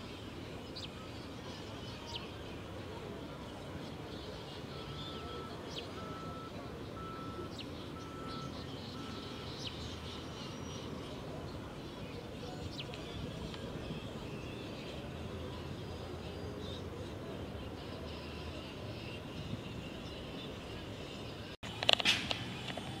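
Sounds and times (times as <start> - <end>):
birds chirping: 0.0 - 23.0
short beeps: 4.7 - 9.5.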